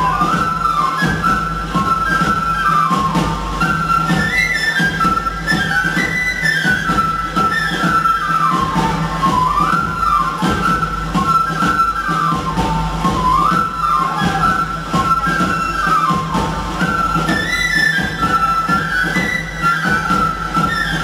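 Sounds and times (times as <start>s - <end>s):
flute melody: 0.0s - 21.0s
steady drum beat: 0.0s - 21.0s.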